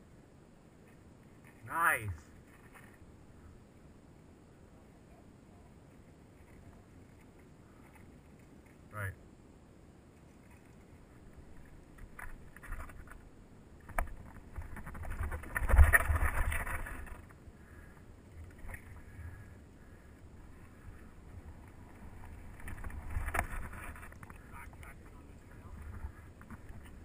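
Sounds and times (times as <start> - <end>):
bike rattling over rocks: 10.5 - 19.2, 20.4 - 27.0.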